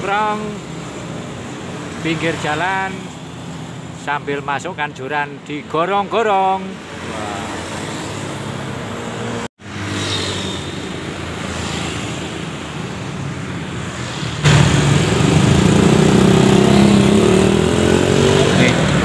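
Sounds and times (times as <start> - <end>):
road traffic noise: 0.0 - 19.0
passing vehicle engine: 6.8 - 19.0.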